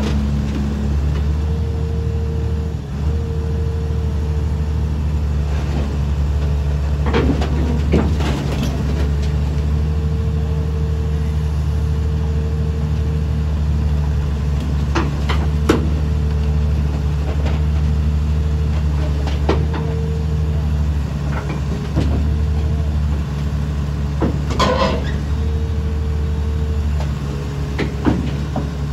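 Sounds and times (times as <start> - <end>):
excavator diesel engine running: 0.0 - 28.9
metal tracks clanking: 5.6 - 10.0, 14.3 - 28.9.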